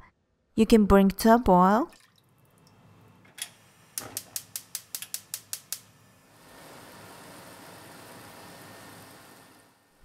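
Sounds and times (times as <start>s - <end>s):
gas flame hissing: 2.8s - 10.0s
stove igniter clicking: 3.3s - 5.9s.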